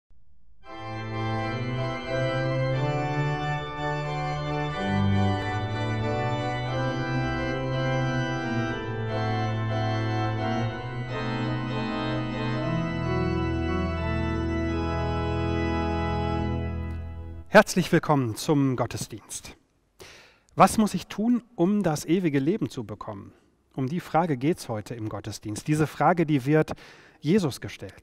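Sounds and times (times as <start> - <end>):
church organ playing chords: 0.6 - 18.5.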